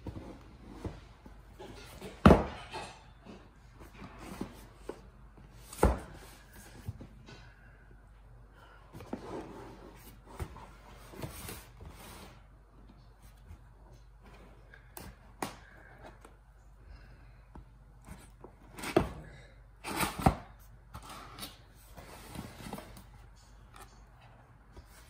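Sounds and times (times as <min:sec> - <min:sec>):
cardboard rustling and sliding: 0:09.0 - 0:12.6, 0:19.8 - 0:23.1.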